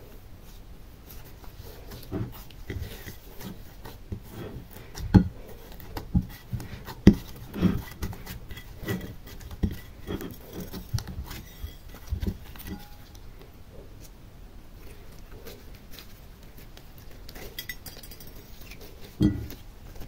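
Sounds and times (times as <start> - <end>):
slime squishing: 1.0 - 13.3.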